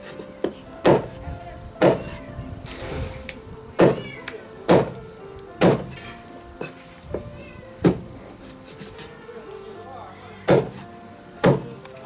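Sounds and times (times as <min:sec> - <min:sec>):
background music: 0:00.0 - 0:12.0
cleaver chopping on wooden block: 0:00.4 - 0:01.2, 0:01.8 - 0:02.2, 0:03.8 - 0:04.0, 0:04.7 - 0:05.0, 0:05.6 - 0:06.0, 0:07.8 - 0:08.0, 0:10.5 - 0:10.8, 0:11.4 - 0:11.8.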